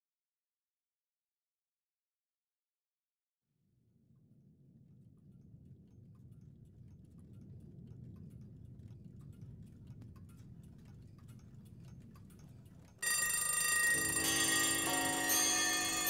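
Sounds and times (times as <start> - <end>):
alarm clock bell ringing: 13.0 - 16.0.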